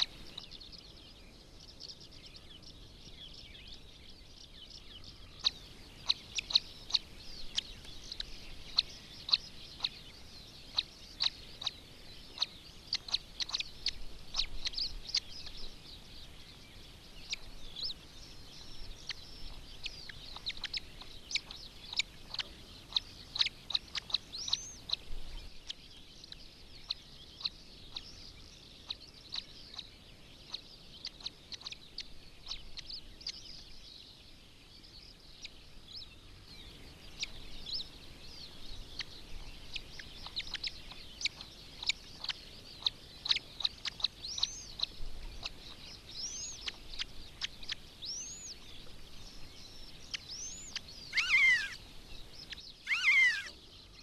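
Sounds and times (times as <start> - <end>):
chicks peeping: 5.4 - 16.3, 17.2 - 26.4, 37.1 - 53.6
bird falling call: 51.1 - 51.8, 52.9 - 53.6.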